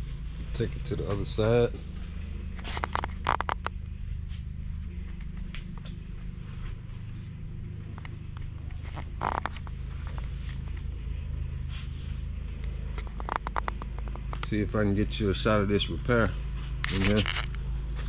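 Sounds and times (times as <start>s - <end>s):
low machine hum: 0.0s - 18.0s
rustles and light scrapes: 2.0s - 14.6s, 16.4s - 18.0s.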